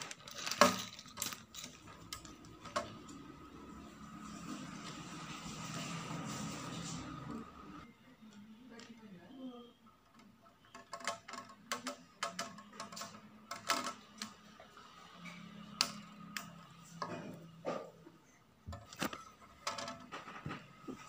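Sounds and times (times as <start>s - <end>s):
plastic parts clicking: 0.0s - 3.2s, 10.0s - 14.5s.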